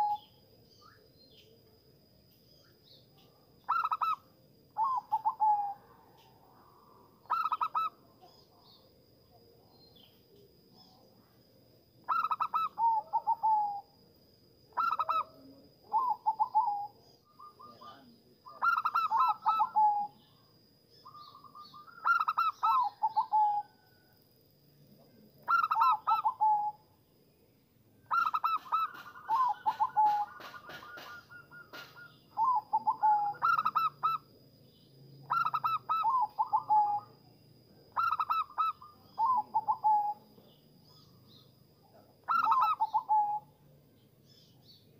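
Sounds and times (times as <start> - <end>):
dove cooing trilled notes: 0.0 - 0.3, 3.7 - 5.9, 7.3 - 8.0, 12.1 - 13.9, 14.7 - 20.3, 21.1 - 23.9, 25.4 - 26.8, 28.1 - 34.3, 35.2 - 37.2, 38.0 - 41.4, 42.2 - 43.5.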